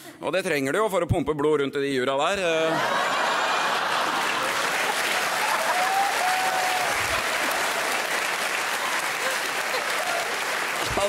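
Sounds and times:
studio audience applauding: 2.8 - 11.0.

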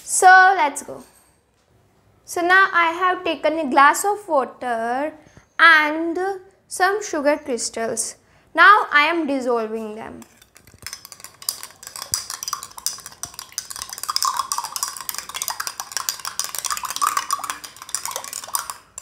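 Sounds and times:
spoon clinking and scraping glass: 10.2 - 19.0.

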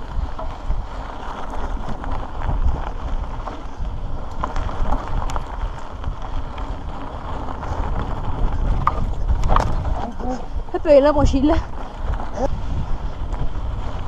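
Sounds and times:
bike rattling: 0.0 - 14.0
tyres crunching over stones: 0.0 - 14.0
wind noise on microphone: 0.0 - 14.0.

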